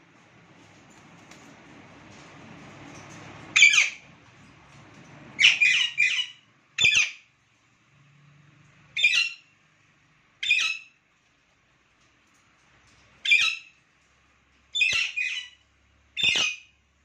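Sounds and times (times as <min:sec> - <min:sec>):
parakeets squawking: 0:03.5 - 0:04.0, 0:05.4 - 0:07.2, 0:09.0 - 0:09.4, 0:13.2 - 0:13.7, 0:14.8 - 0:15.6, 0:16.2 - 0:16.7.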